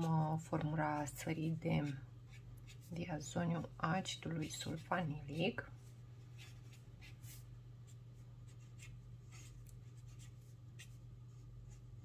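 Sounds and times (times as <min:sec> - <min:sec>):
steady low hum: 0:00.0 - 0:12.0
pen scratching on paper: 0:08.5 - 0:11.8.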